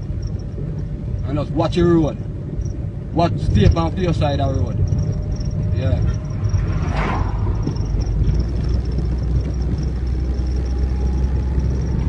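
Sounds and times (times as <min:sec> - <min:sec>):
car engine and road rumble: 0:00.0 - 0:12.0
passing car whoosh: 0:04.5 - 0:12.0.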